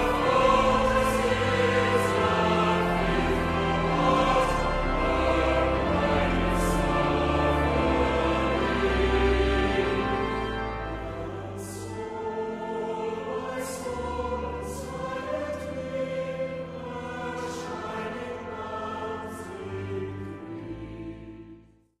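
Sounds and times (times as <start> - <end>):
choir singing slow chords: 0.0 - 22.0.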